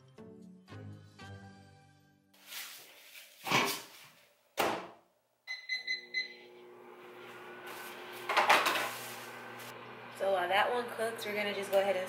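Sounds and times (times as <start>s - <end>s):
keypad beeps: 5.5s - 6.4s
microwave humming: 5.5s - 12.0s.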